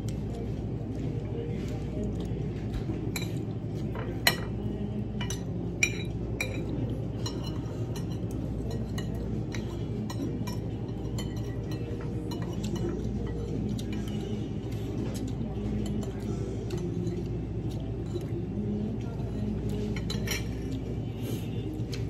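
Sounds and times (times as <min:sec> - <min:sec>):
low background hum: 0:00.0 - 0:22.0
cutlery clinking on plates: 0:02.7 - 0:18.4, 0:19.2 - 0:20.9.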